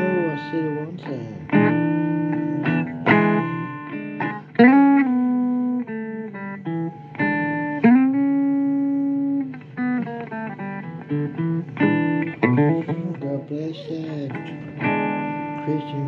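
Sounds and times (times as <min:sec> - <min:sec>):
guitar playing blues lick: 0:00.0 - 0:16.0.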